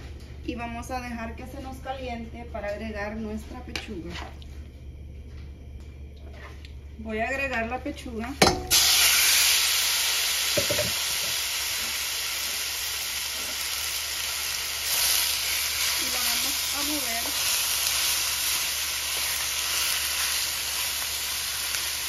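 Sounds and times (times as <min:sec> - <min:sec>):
chicken sizzling in a pan: 0:08.7 - 0:22.0.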